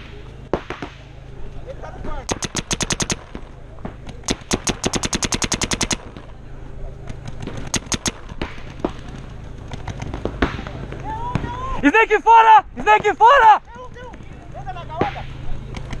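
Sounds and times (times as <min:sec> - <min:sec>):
paintball markers firing: 0:02.3 - 0:06.4, 0:07.1 - 0:11.5.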